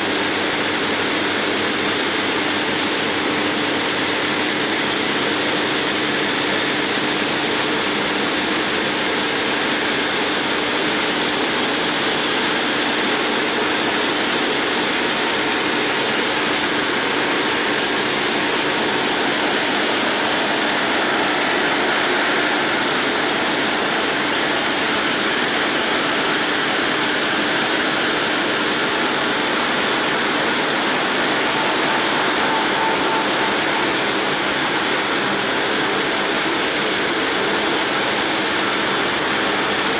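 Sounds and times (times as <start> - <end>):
saw blades cutting stone: 16.8 - 37.8
water spray hiss: 18.1 - 26.1.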